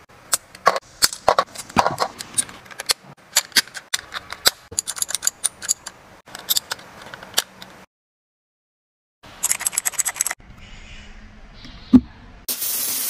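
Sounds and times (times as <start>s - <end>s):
plastic keycaps clicking: 9.4s - 10.4s.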